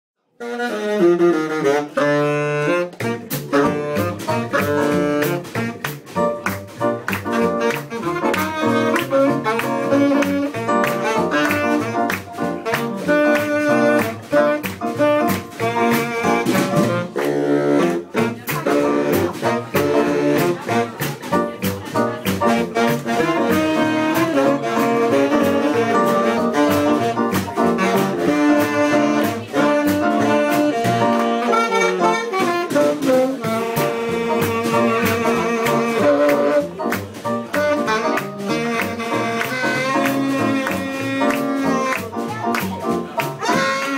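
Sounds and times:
jazz band playing swing: 0.4 - 43.9.

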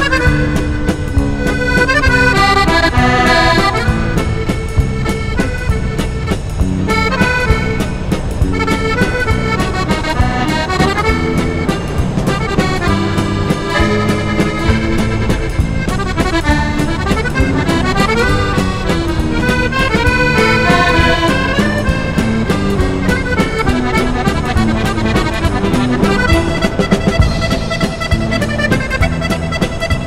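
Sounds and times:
accordion music: 0.0 - 30.0.

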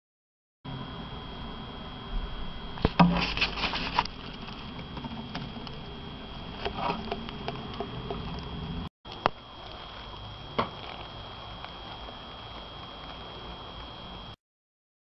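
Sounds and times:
steady recording hiss: 0.7 - 14.4
hamster rustling in wood shavings: 3.0 - 4.7.

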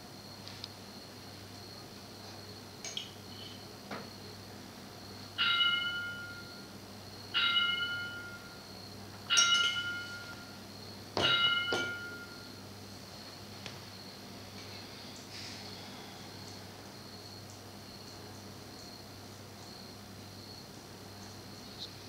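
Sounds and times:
small bell ringing: 5.4 - 6.6, 7.4 - 8.6, 9.3 - 10.6, 11.2 - 12.6.

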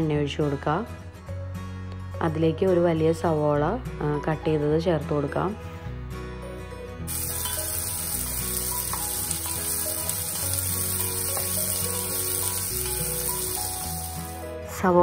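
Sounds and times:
onions sizzling in oil: 7.1 - 14.4.

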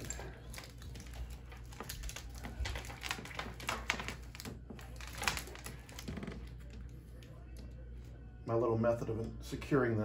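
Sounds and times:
clicks and rustles of wire: 0.0 - 7.8
low steady hum: 0.0 - 10.0.

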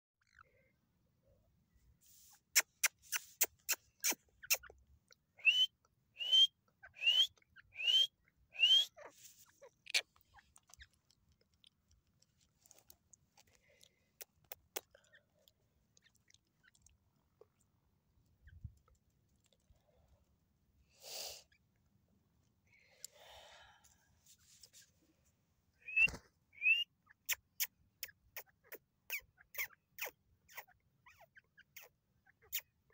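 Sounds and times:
bird rising whistled notes: 25.8 - 26.8.

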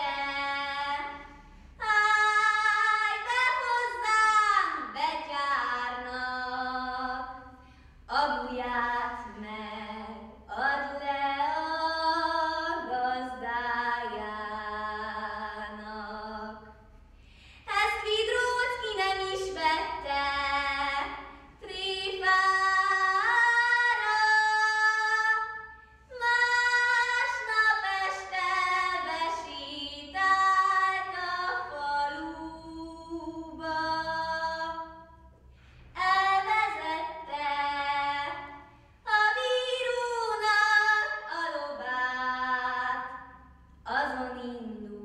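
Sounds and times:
girl singing unaccompanied: 1.8 - 7.4, 17.7 - 35.0.

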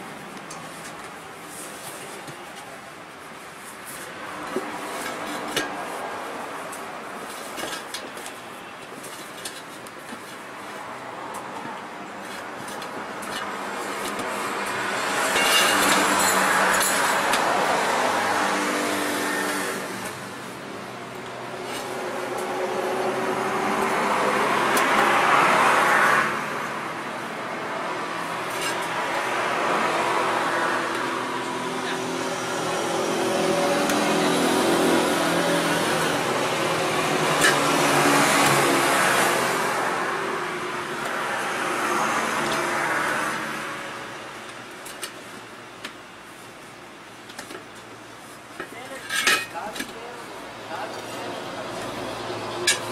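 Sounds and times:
passing road traffic: 0.0 - 52.9.

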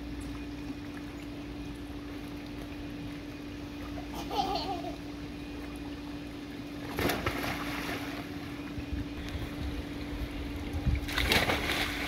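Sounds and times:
low mechanical hum: 0.0 - 12.0
wind rumble on microphone: 8.8 - 11.8.

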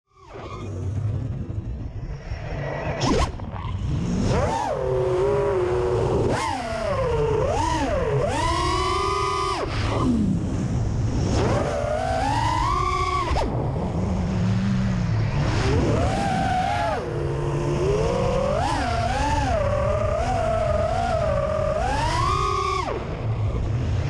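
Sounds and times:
drone motors whining: 0.1 - 24.0.

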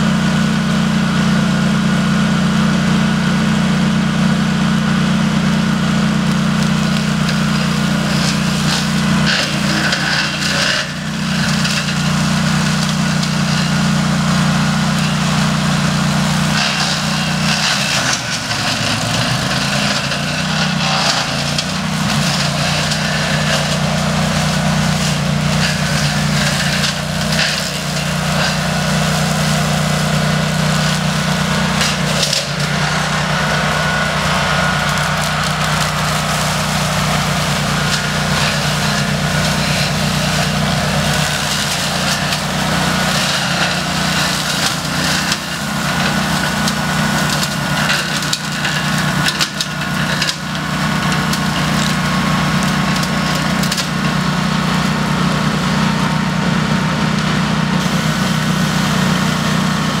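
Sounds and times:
mower engine running: 0.0 - 60.0.

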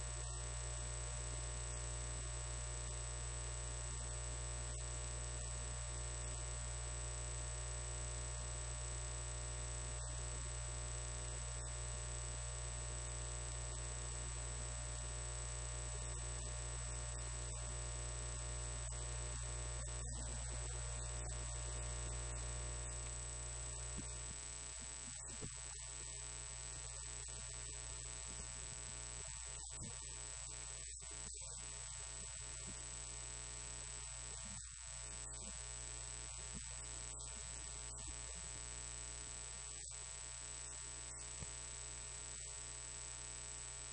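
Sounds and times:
electrical hum: 12.6 - 43.9.

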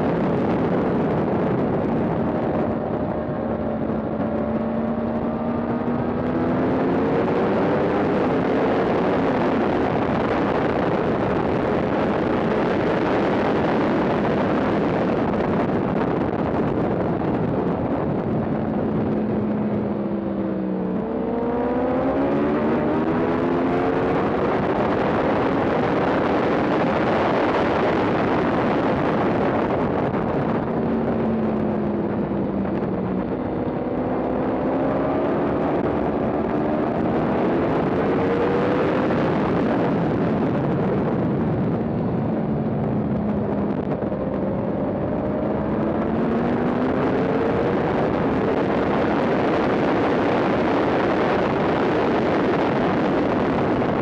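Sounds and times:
heavy wind rush: 0.0 - 54.0
motorcycle engine revving: 1.6 - 14.6, 18.6 - 40.1.

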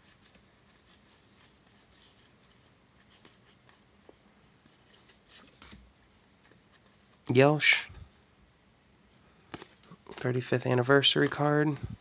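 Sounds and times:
cards flicking and rustling: 0.0 - 7.2, 9.5 - 11.8.

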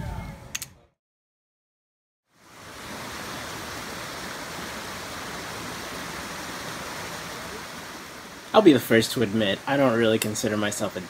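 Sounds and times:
stream running over rapids: 2.3 - 11.0.

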